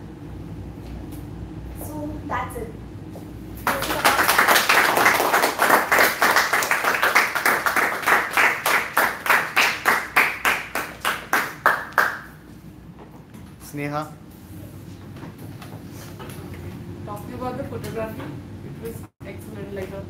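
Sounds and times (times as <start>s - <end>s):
audience applauding: 3.6s - 12.4s.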